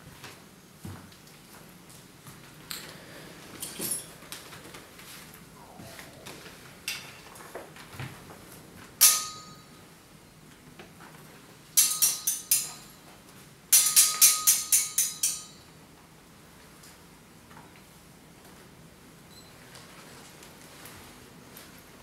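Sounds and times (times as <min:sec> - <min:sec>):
metal striking metal: 0:09.0 - 0:09.8, 0:11.8 - 0:13.0.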